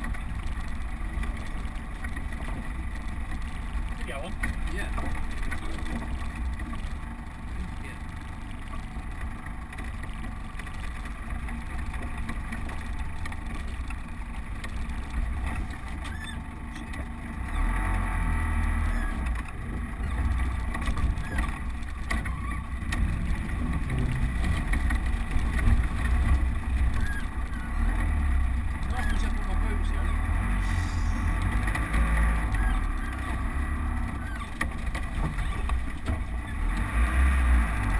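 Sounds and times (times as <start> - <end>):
engine and drivetrain rumble: 0.0 - 37.9.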